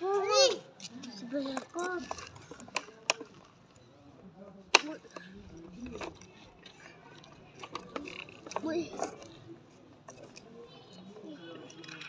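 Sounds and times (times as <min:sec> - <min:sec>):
faint children's voices: 0:00.0 - 0:12.0
plastic toy clicking: 0:00.8 - 0:03.5, 0:04.7 - 0:09.4, 0:11.6 - 0:12.0.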